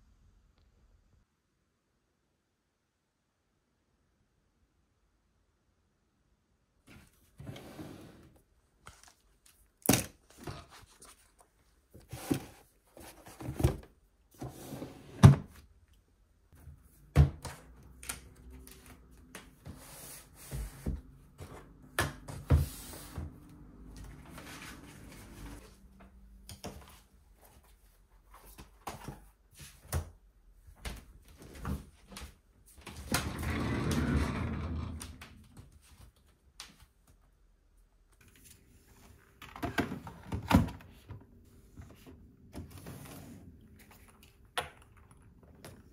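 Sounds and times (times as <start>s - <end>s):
desk drawer sliding: 7.4s - 8.4s, 14.4s - 15.5s, 33.1s - 35.3s.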